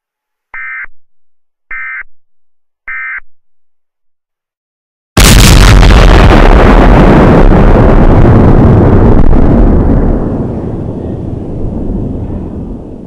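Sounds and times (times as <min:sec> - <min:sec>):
bomb explosion rumble: 0:05.2 - 0:13.0.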